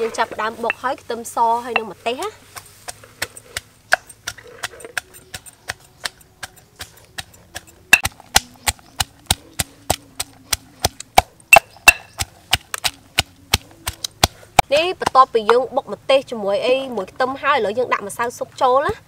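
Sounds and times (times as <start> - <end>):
pestle pounding in stone mortar: 2.9 - 15.2.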